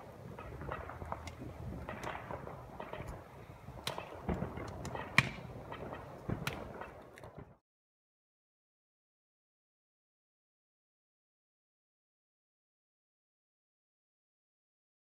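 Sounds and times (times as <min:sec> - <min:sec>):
firecrackers crackling: 0:00.0 - 0:07.6
firework bangs: 0:00.0 - 0:07.6.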